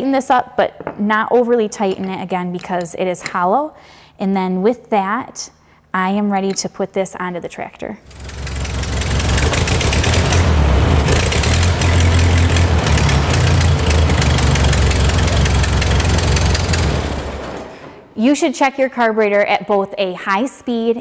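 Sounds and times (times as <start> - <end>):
tractor engine rumbling: 8.1 - 17.8.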